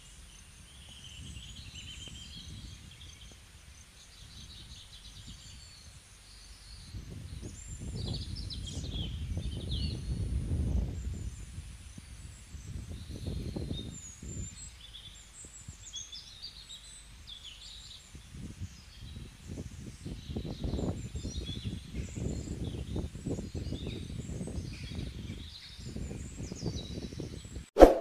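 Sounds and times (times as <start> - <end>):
small birds chirping: 0.0 - 27.7
wind gusting on microphone: 0.6 - 3.4, 6.7 - 15.8, 18.1 - 28.0.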